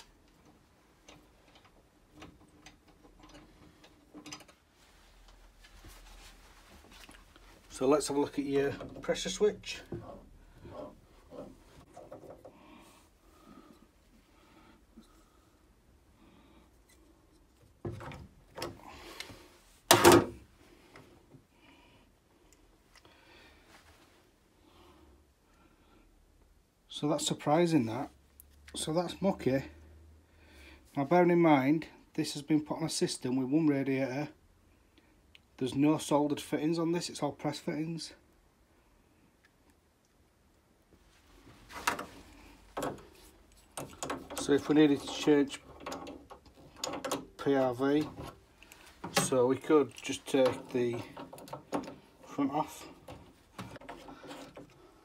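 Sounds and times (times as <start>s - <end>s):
rustling of handling: 0.0s - 15.4s, 40.9s - 55.0s
tools clacking: 0.2s - 4.6s, 41.7s - 54.8s
boiler parts clunking: 41.7s - 55.0s.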